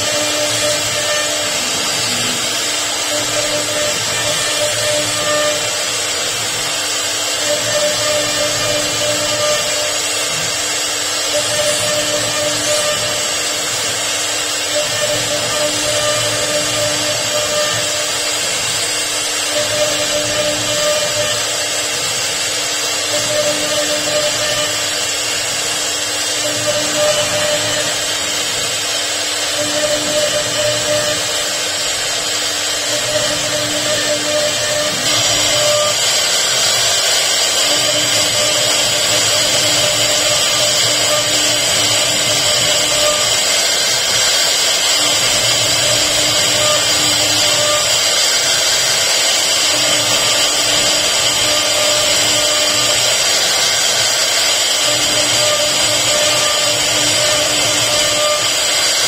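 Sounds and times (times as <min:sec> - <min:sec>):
router cutting wood: 0:00.0 - 0:59.0.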